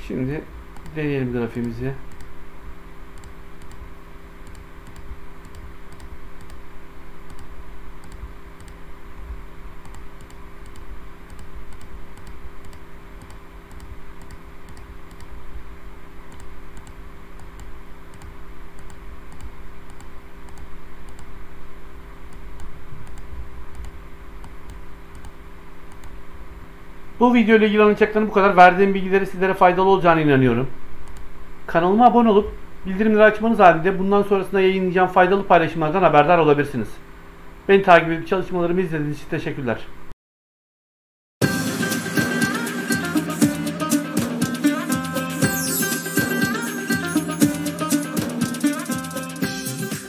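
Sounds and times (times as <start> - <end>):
low electrical hum: 0.0 - 40.1
computer mouse clicking: 0.7 - 1.0, 1.6 - 2.4, 3.1 - 6.6, 7.2 - 8.8, 9.8 - 15.4, 16.3 - 21.3, 22.3 - 26.2, 31.0 - 31.3.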